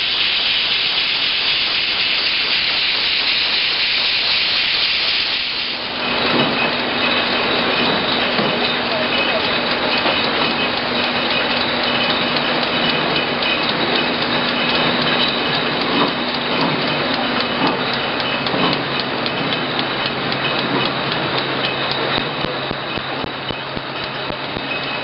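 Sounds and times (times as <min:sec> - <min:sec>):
machinery clattering: 0:00.0 - 0:25.0
machinery hum and whine: 0:00.0 - 0:25.0
sharp clicks and knocks: 0:06.0 - 0:25.0.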